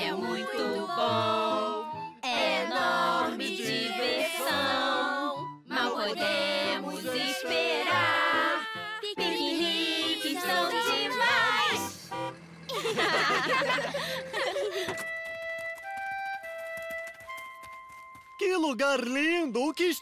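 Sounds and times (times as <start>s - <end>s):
voices singing cartoon song: 0.0s - 12.1s
backing music: 0.0s - 18.6s.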